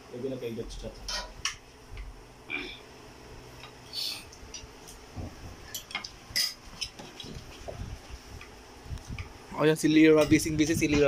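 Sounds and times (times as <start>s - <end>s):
cutlery clinking on plates: 5.8s - 7.0s.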